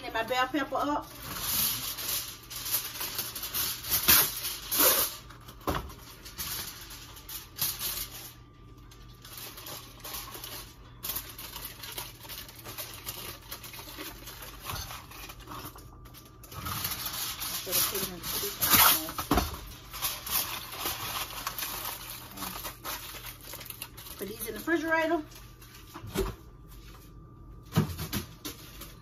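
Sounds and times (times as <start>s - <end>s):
aluminum foil crinkling: 0.0s - 27.2s, 28.0s - 29.0s.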